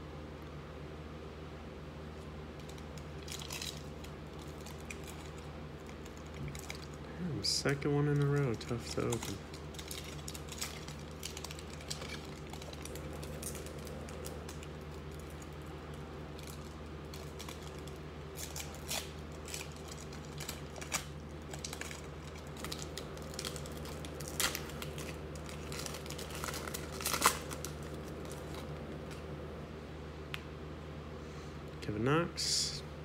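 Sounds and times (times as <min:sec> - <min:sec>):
wrapper tearing open: 0:02.6 - 0:07.0, 0:07.6 - 0:29.2
foil wrapper crinkling: 0:02.6 - 0:29.2.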